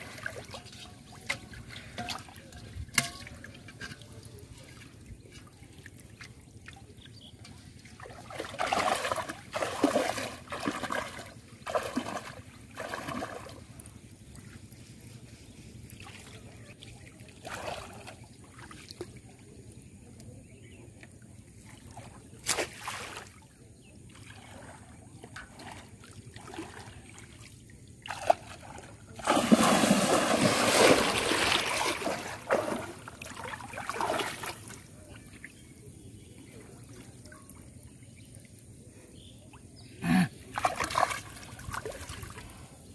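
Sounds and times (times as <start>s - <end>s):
person wading through water: 0.0s - 3.0s, 3.8s - 19.2s, 24.1s - 35.8s, 36.4s - 42.9s
water trickling: 0.0s - 20.6s.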